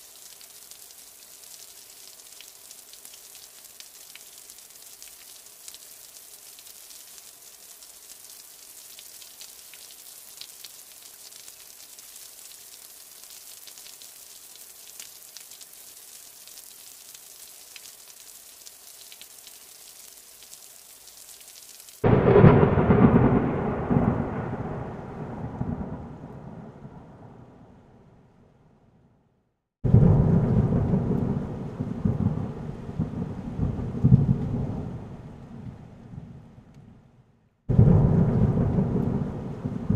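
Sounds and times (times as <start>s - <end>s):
raindrop ticks: 0.0s - 22.2s, 38.0s - 39.9s
light rain hiss: 0.0s - 28.0s, 29.9s - 37.1s, 37.7s - 39.9s
thunderclap rumbling: 22.0s - 27.9s, 29.8s - 36.4s, 37.7s - 39.9s.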